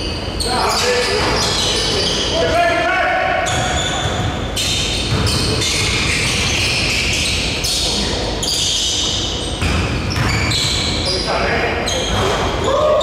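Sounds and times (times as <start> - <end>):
basketball bouncing on court: 3.5 - 8.0, 9.0 - 11.0.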